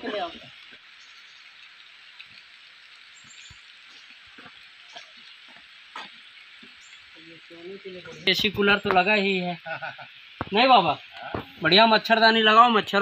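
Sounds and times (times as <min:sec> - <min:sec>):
light rain hiss: 0:00.0 - 0:13.0
ticks of raindrops: 0:00.0 - 0:13.0.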